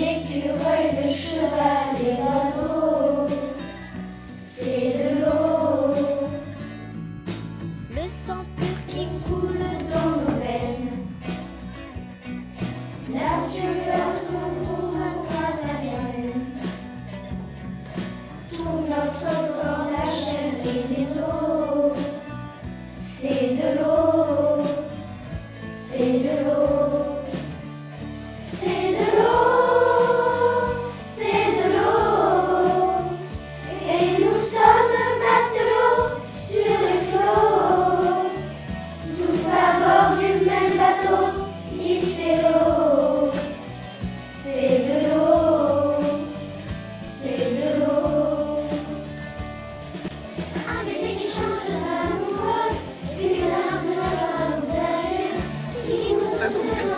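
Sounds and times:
choir singing: 0:00.0 - 0:03.8, 0:04.4 - 0:06.5, 0:09.3 - 0:11.2, 0:13.1 - 0:16.5, 0:18.5 - 0:22.3, 0:23.0 - 0:25.0, 0:25.8 - 0:27.6, 0:28.4 - 0:43.6, 0:44.4 - 0:46.4, 0:47.1 - 0:49.0, 0:50.6 - 0:56.9
musical accompaniment: 0:00.0 - 0:56.9.

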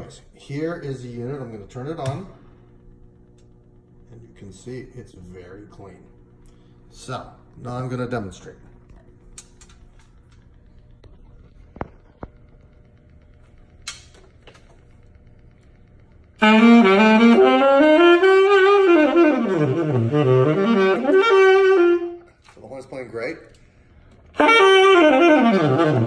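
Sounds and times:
tenor saxophone melody: 0:16.4 - 0:22.4, 0:24.3 - 0:26.0.

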